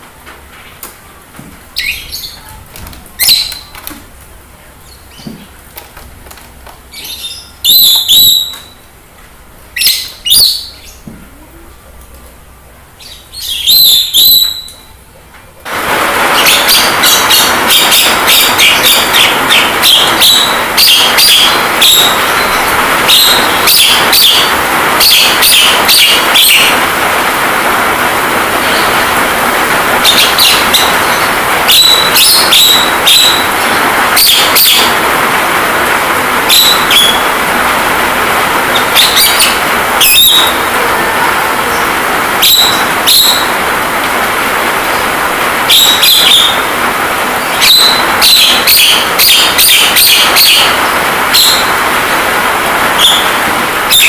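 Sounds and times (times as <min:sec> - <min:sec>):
rain hiss: 0:00.0 - 0:54.0
myna chirps and whistles: 0:03.2 - 0:03.7, 0:07.0 - 0:08.8, 0:13.0 - 0:14.9, 0:16.4 - 0:26.8, 0:30.0 - 0:33.6, 0:36.5 - 0:37.3, 0:38.8 - 0:40.7, 0:42.4 - 0:43.5, 0:45.7 - 0:46.7, 0:47.5 - 0:51.7.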